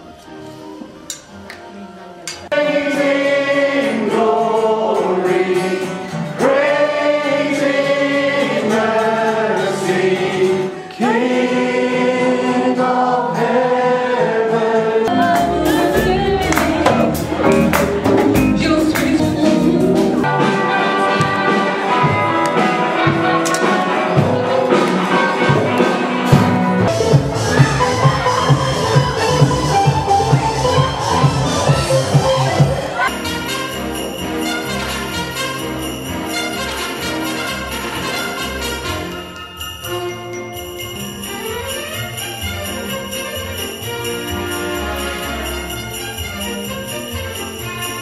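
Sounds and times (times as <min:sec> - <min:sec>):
group singing worship song: 0:02.4 - 0:20.3.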